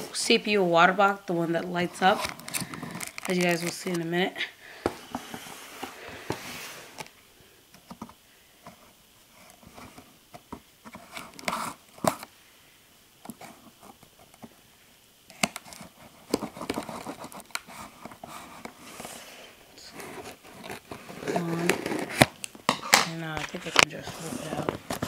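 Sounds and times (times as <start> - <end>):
tape and cardboard tearing: 2.1 - 4.0, 11.0 - 12.3, 19.9 - 25.0.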